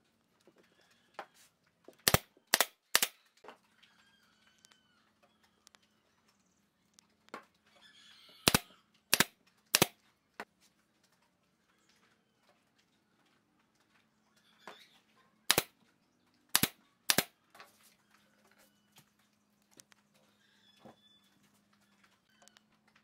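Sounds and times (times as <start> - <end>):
nail gun firing into wood: 2.0 - 3.2, 8.5 - 10.0, 15.5 - 15.7, 16.5 - 17.3.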